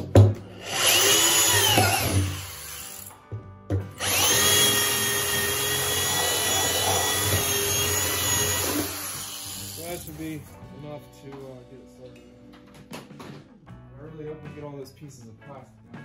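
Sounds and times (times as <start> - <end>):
electric drill boring into plastic: 0.5 - 3.2, 4.0 - 10.1.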